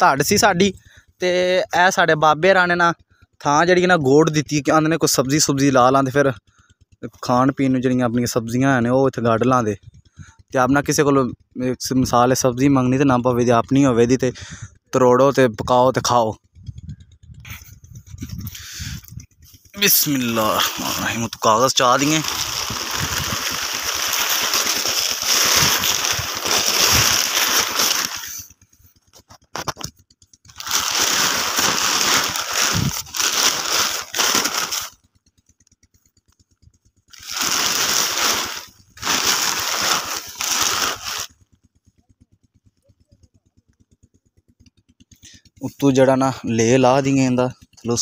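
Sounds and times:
plastic sheet rustling: 0:19.8 - 0:28.5, 0:30.5 - 0:35.0, 0:37.1 - 0:41.3.

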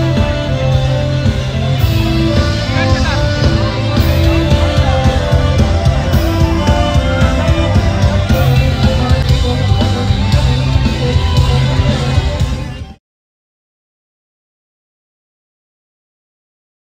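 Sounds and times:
loud music with guitar and drums: 0:00.0 - 0:13.0.

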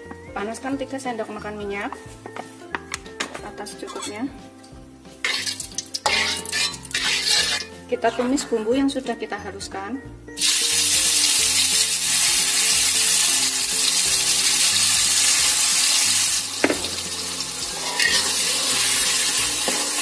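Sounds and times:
spatula stirring in wok: 0:05.2 - 0:07.8
spice paste sizzling in hot oil: 0:05.2 - 0:07.8, 0:10.4 - 0:20.0
sharp knock: 0:16.6 - 0:17.0.

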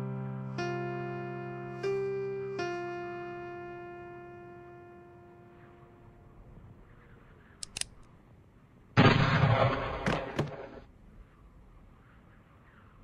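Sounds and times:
revolver clicks: 0:07.6 - 0:08.1
loud gunshot ringing: 0:09.0 - 0:10.8.

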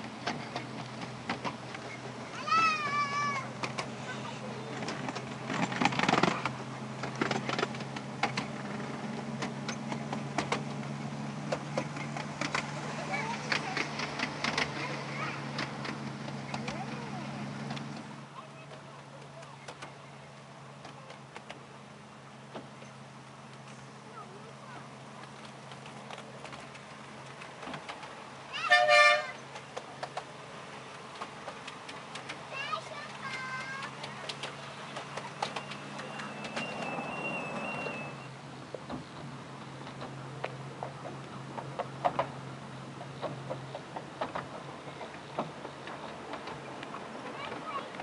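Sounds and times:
train wheels clicking on rail joints: 0:00.0 - 0:48.0
miniature train horn toot: 0:28.6 - 0:29.4.

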